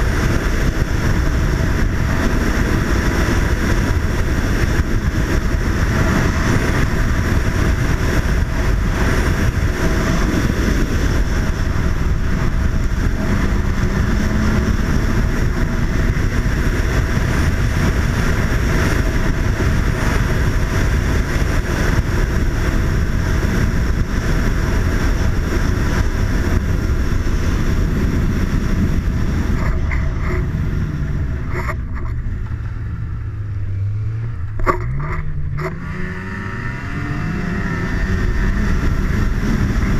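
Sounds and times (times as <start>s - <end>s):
snowmobile engine drone: 0.0s - 39.9s
wind noise on microphone: 0.0s - 39.9s.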